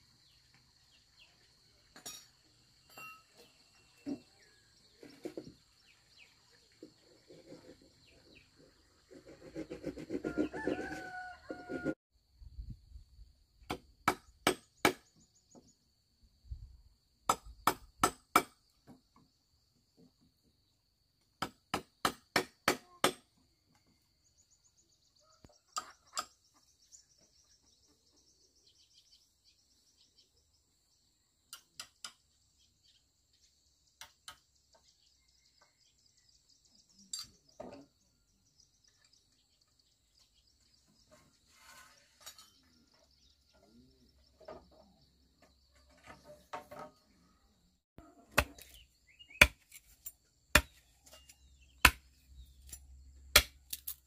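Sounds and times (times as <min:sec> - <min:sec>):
rooster crowing: 0:10.3 - 0:12.0.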